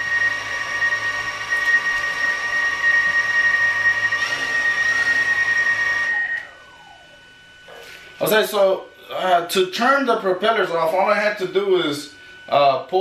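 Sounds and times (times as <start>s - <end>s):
drone propellers whining: 0.0s - 12.8s.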